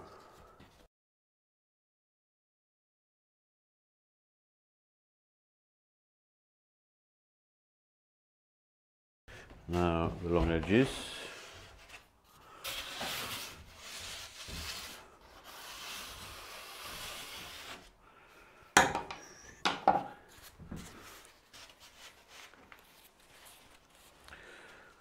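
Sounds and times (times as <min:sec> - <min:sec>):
scraping on insulation board: 0:12.7 - 0:17.9.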